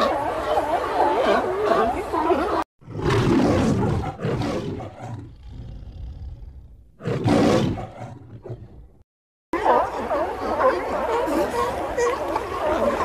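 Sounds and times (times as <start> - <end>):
lion roaring: 2.8 - 8.8.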